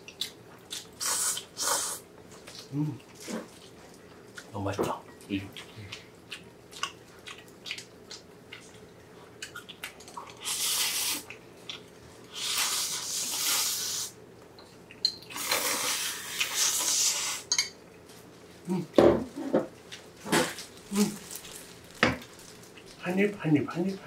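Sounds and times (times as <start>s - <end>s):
wet chewing clicks: 5.2s - 11.9s.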